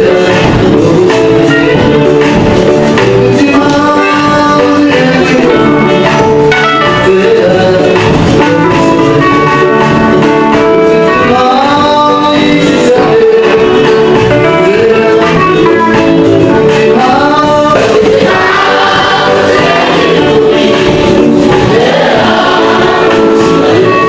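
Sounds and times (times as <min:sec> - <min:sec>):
man singing into microphone: 0:00.0 - 0:24.0
choir singing gospel song: 0:12.1 - 0:24.0.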